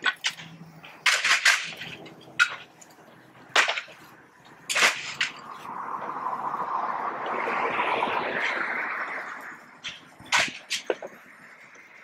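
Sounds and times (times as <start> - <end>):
siding shingles cracking and shattering: 0.0 - 2.8, 3.5 - 4.1, 4.7 - 5.4, 9.8 - 11.1.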